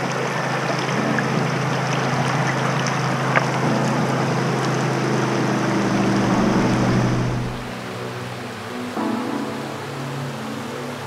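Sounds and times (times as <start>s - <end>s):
rushing water: 0.0s - 11.0s
jet boat engine humming: 3.1s - 7.7s.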